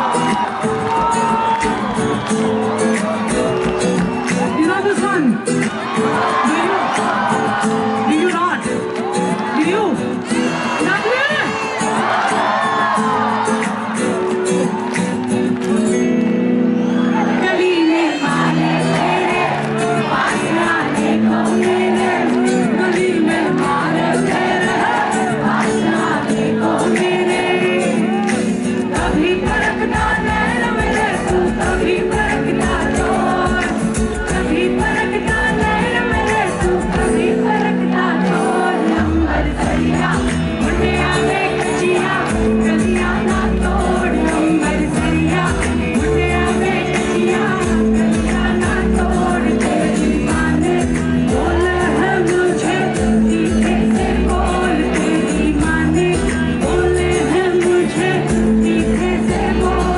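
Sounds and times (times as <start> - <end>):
live band playing: 0.0 - 59.9
woman singing: 17.2 - 59.9.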